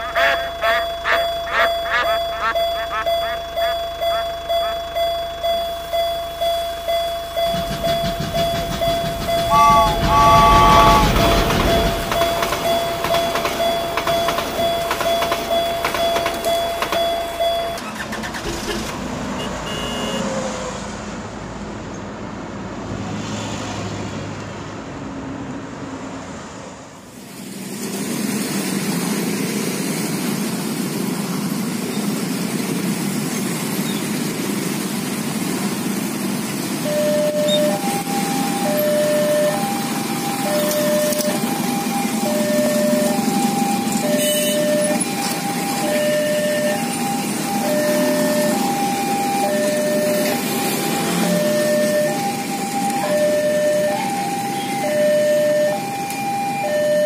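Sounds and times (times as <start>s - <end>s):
short toots: 0.0s - 5.1s, 7.4s - 17.2s
toy crossing alarm dinging: 0.0s - 18.1s, 36.8s - 57.0s
car engine: 0.0s - 53.8s
rumble: 1.7s - 17.7s
motorcycle engine: 7.2s - 17.0s.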